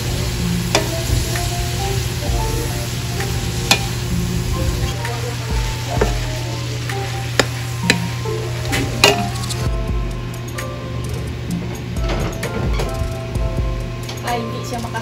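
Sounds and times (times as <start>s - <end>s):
vegetables sizzling in a wok: 0.0s - 9.7s
steady low hum: 0.0s - 15.0s
spatula scraping and knocking pan: 5.6s - 6.5s, 7.3s - 9.7s.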